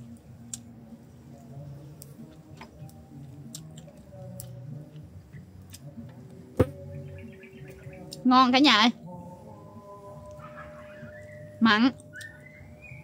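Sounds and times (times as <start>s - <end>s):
light chewing: 0.1s - 0.7s, 1.3s - 6.4s.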